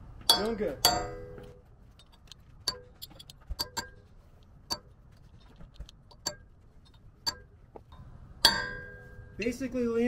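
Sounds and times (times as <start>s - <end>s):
hammer tapping metal chisel: 0.2s - 4.1s, 4.7s - 4.9s, 5.8s - 9.4s.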